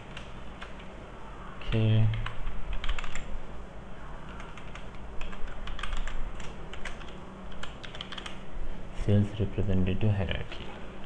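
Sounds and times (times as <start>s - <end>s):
low steady hum: 0.0s - 11.0s
keyboard typing: 2.1s - 3.3s, 4.3s - 8.4s.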